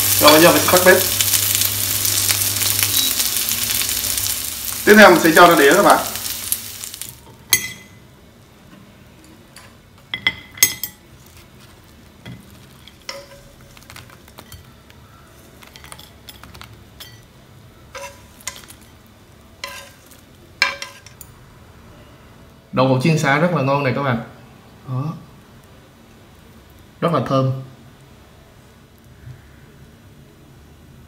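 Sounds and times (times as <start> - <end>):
food sizzling in frying pan: 0.0 - 8.1, 9.8 - 21.4
utensil clinking on pan and plate: 9.6 - 11.1, 12.2 - 14.7, 15.6 - 17.3, 17.9 - 19.0, 19.6 - 21.3.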